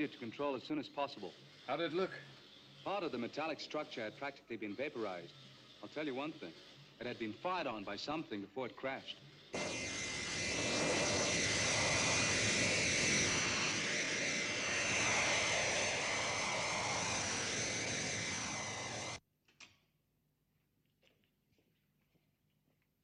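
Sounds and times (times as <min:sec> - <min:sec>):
jet engine roar with whine: 0:09.5 - 0:19.2.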